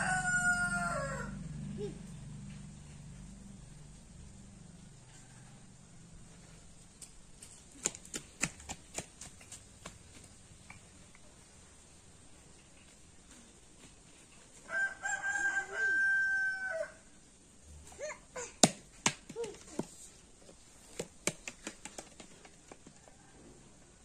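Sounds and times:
rooster crowing: 0:00.0 - 0:01.6, 0:14.7 - 0:17.1.

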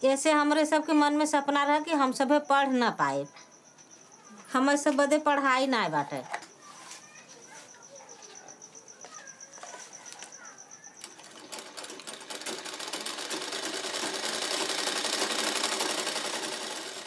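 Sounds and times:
faint high pulsing tone: 0:00.4 - 0:11.3
sewing machine clatter: 0:11.0 - 0:17.0.

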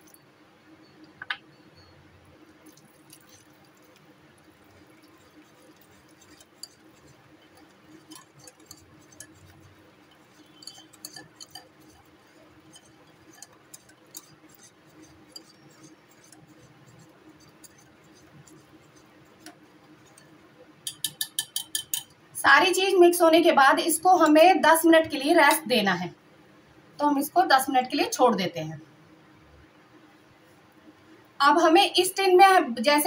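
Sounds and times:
faint steady hum: 0:00.0 - 0:33.0
whisk clinking against glass bowl: 0:04.6 - 0:22.1.

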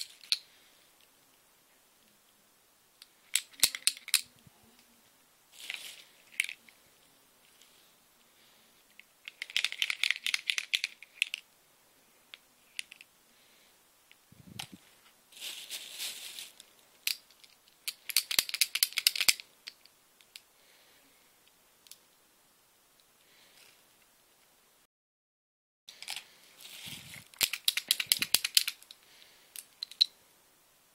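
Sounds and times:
markers clicking together: 0:03.4 - 0:04.3, 0:17.8 - 0:20.4, 0:27.3 - 0:28.9
plastic bag crinkling: 0:05.5 - 0:06.6, 0:15.3 - 0:19.4.

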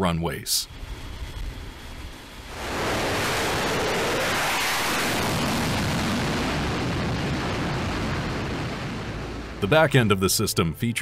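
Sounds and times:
jet engines roaring: 0:00.7 - 0:10.0.

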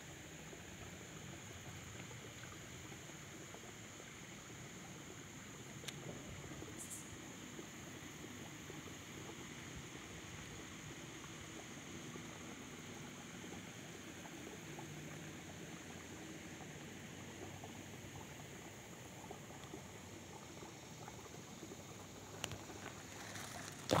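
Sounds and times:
outdoor background hiss: 0:00.0 - 0:24.0
soft crackles: 0:22.3 - 0:24.0.

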